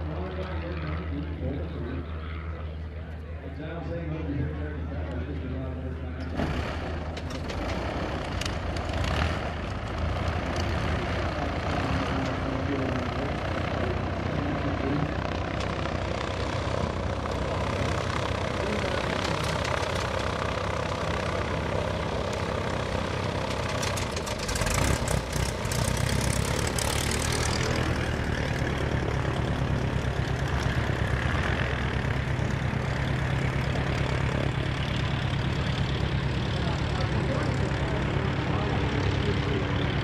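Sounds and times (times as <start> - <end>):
propeller aircraft engine droning: 0.0 - 40.0.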